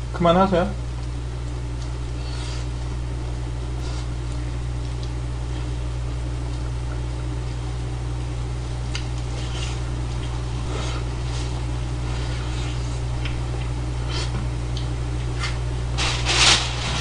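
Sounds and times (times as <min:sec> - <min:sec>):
low hum: 0:00.0 - 0:17.0
chewing smacks: 0:03.8 - 0:05.7, 0:08.7 - 0:10.5, 0:12.5 - 0:15.6.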